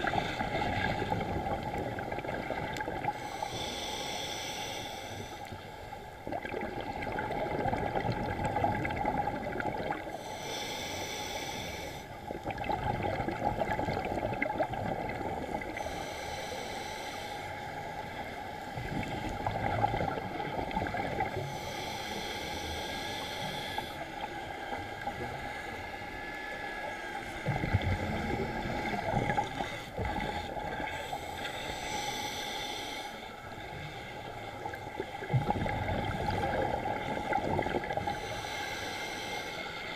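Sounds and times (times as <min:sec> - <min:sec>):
exhaled bubbles rumbling: 0:00.0 - 0:03.2, 0:06.2 - 0:10.1, 0:12.3 - 0:15.8, 0:18.7 - 0:21.5, 0:27.4 - 0:31.0, 0:34.6 - 0:38.2
regulator air hiss: 0:03.2 - 0:05.7, 0:10.2 - 0:12.2, 0:15.8 - 0:18.7, 0:21.4 - 0:24.6, 0:31.0 - 0:34.4, 0:38.1 - 0:39.9.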